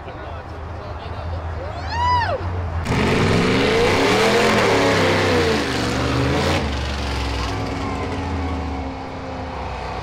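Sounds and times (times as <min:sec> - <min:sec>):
car engine revving: 0:02.8 - 0:07.7.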